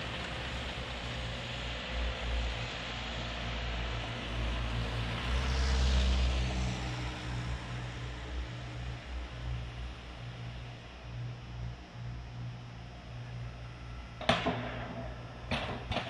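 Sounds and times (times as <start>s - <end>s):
low traffic rumble: 0.0s - 16.0s
car passing on wet road: 3.8s - 8.5s.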